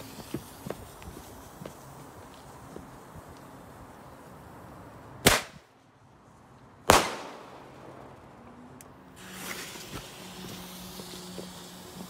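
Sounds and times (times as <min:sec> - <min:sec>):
firework bangs: 0:05.2 - 0:05.7, 0:06.9 - 0:08.5.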